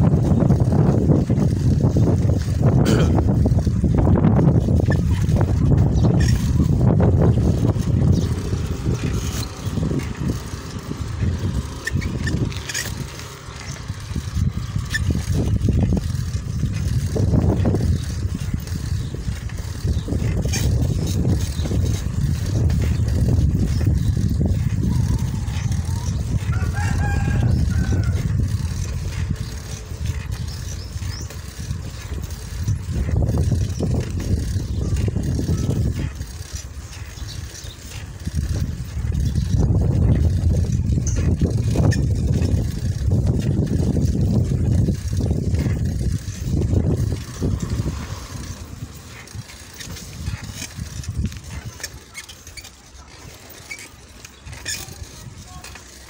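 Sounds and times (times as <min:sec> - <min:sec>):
wind buffeting microphone: 0:00.0 - 0:56.0
rooster crowing: 0:26.5 - 0:28.3.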